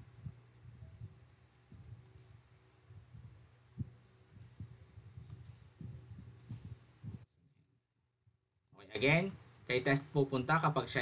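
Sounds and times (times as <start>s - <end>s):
low steady hum: 0.0s - 11.0s
mouse and keyboard clicks: 5.2s - 5.6s, 6.4s - 7.2s.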